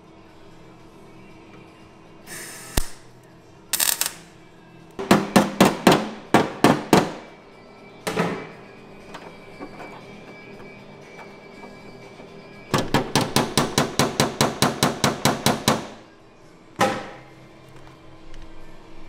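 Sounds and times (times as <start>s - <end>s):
welding crackle: 3.7s - 4.3s.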